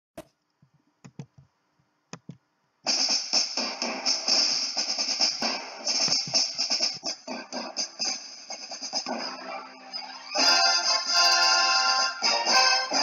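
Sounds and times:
drum hits: 2.9s - 8.0s.

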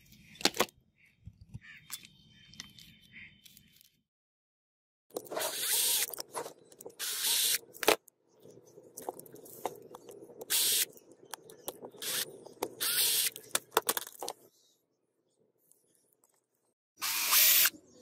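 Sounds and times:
drill bit and housing rattling: 5.2s - 8.0s
power drill running in bursts: 17.0s - 17.7s.

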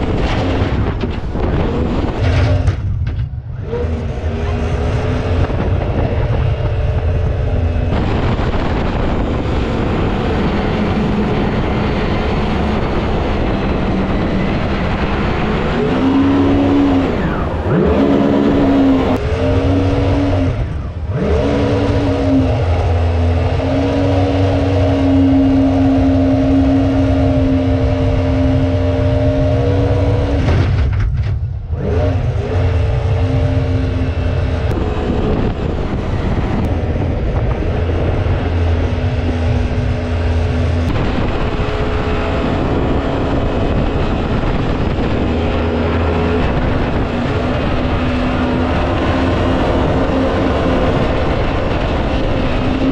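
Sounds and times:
boat engine running hard: 0.0s - 52.9s
water rushing: 7.9s - 29.3s.

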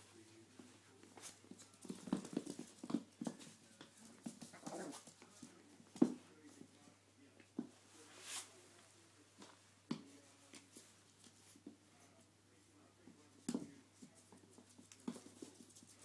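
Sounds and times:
puppy scrabbling on floor: 1.2s - 6.2s.

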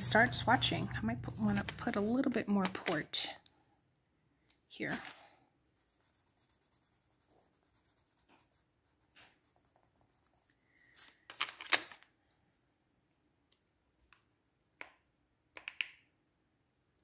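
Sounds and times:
pencil scratching on paper: 5.8s - 10.5s.

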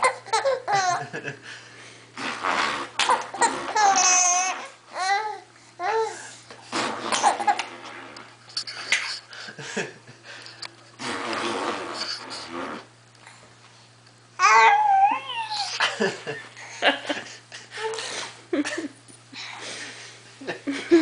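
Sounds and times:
baby giggling: 0.0s - 1.1s, 3.0s - 5.2s
baby high-pitched squeal: 14.4s - 15.8s.

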